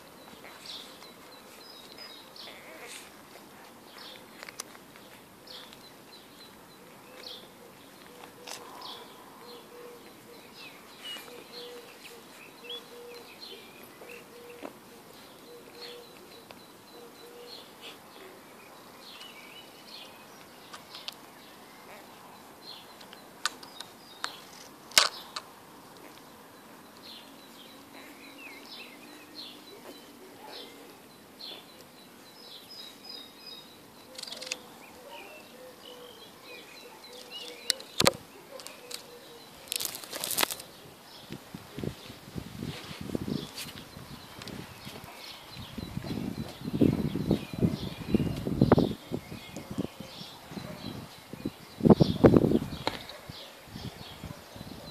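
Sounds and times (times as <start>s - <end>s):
small birds chirping: 0.0s - 54.9s
sharp clicks: 23.0s - 26.2s, 34.0s - 34.7s.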